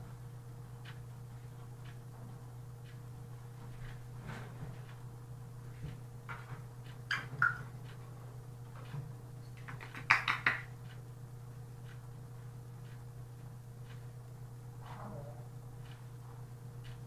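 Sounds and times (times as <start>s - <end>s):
steady low hum: 0.0s - 17.0s
parrot clicking in cage: 9.6s - 10.7s.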